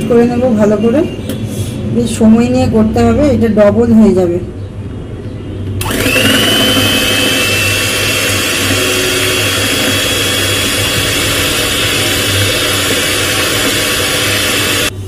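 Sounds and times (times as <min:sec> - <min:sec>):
electric hand mixer whirring: 0:05.8 - 0:15.0.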